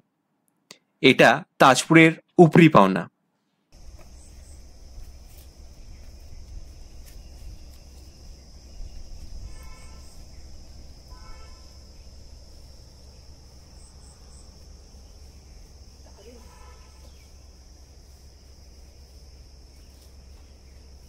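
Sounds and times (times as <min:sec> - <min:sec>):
crickets chirring: 0:03.8 - 0:21.0
short pitched calls: 0:09.2 - 0:12.4.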